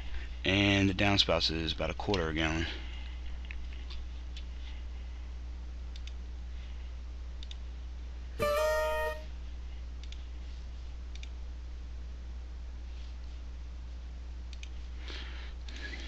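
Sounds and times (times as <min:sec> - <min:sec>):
system alert chime: 0:08.4 - 0:09.2.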